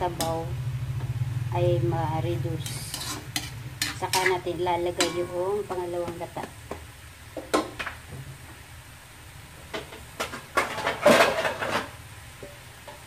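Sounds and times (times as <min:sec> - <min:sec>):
metal cookware clattering: 0:02.6 - 0:05.9, 0:09.7 - 0:13.0.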